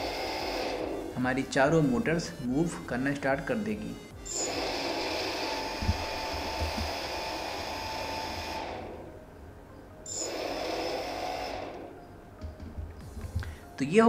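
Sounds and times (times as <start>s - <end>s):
drone motors whining: 0.0s - 1.2s, 4.0s - 9.3s, 10.1s - 12.0s.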